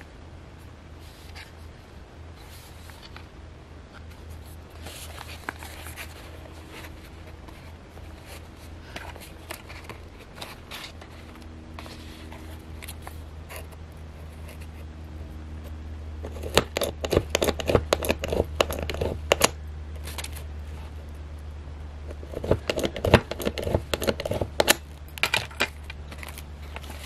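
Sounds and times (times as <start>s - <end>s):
stiff paper folder handling: 22.1s - 27.0s.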